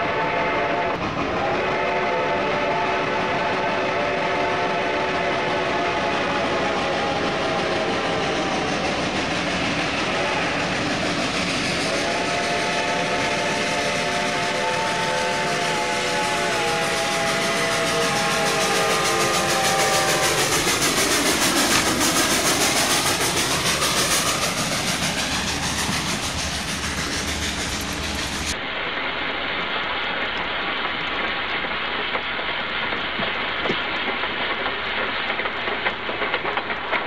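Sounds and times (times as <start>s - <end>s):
steam train whistle: 0.0s - 28.6s
steam engine rushing past: 0.0s - 37.0s
wheels clacking over rail joints: 16.7s - 28.6s.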